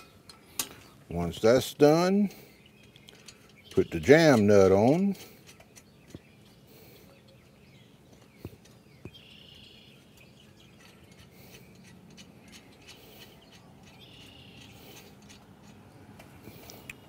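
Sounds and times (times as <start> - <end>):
bird chirping: 2.3 - 17.0
small clicks of nut threading: 2.8 - 6.3, 10.2 - 17.0.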